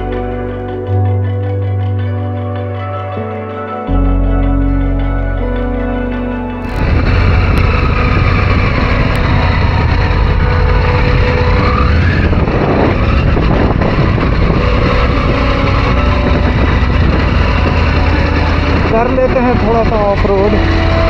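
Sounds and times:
motorcycle engine running: 0.0s - 3.3s, 6.6s - 21.0s
wind rush: 6.6s - 21.0s.

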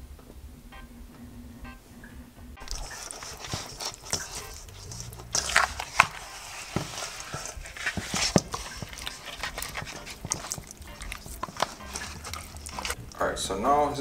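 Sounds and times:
hands massaging raw chicken: 2.6s - 13.2s
wet squelches and slaps: 2.6s - 13.2s.

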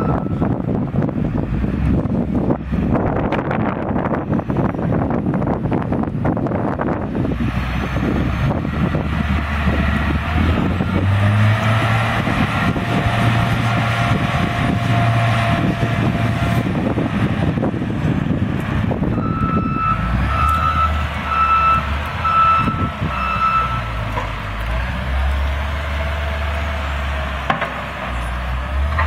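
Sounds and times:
diesel engine pulling hard: 0.0s - 29.0s.

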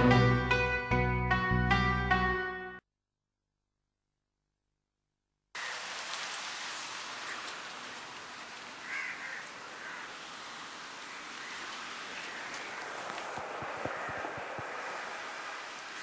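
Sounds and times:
background ambience hiss: 5.6s - 16.0s.

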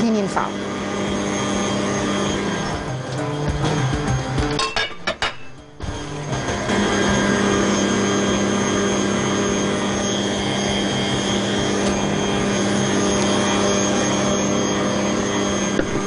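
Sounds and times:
electric stand mixer whirring: 0.0s - 4.6s, 5.8s - 16.0s.

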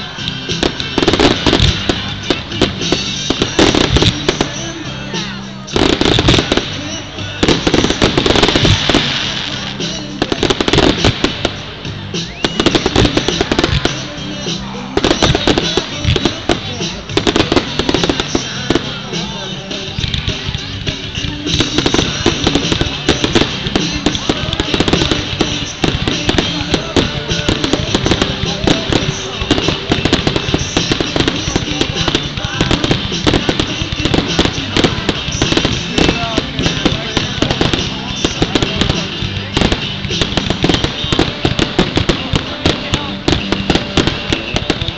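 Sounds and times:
fireworks crackling bangs: 0.0s - 44.9s
firework rising whistle: 12.1s - 13.6s.

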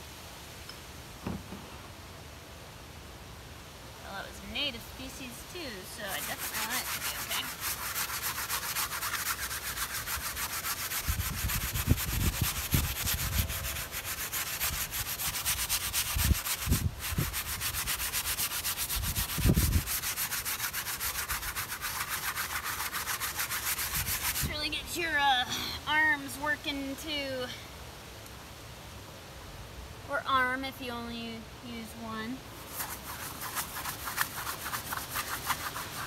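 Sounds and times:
paintbrush scrubbing varnish: 5.8s - 24.6s, 32.6s - 36.0s.

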